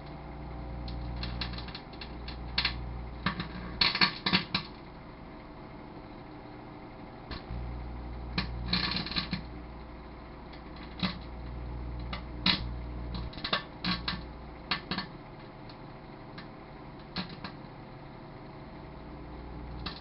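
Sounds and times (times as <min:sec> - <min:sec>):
electric arcing snaps and crackles: 0:00.0 - 0:04.8, 0:07.3 - 0:09.8, 0:10.5 - 0:17.7, 0:19.4 - 0:20.0
microwave oven humming: 0:00.0 - 0:20.0.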